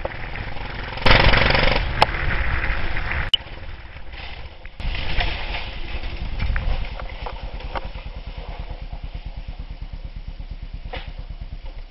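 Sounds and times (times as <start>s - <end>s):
dirt bike engine idling: 0.0s - 2.0s, 5.6s - 11.9s.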